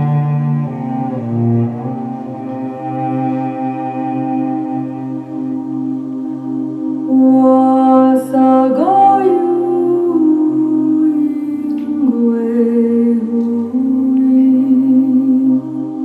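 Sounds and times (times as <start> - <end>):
unaccompanied person singing: 7.0 - 16.0.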